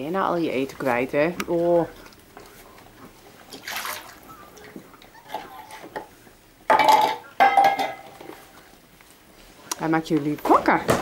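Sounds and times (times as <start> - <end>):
metal bowls clanking: 6.7 - 8.3.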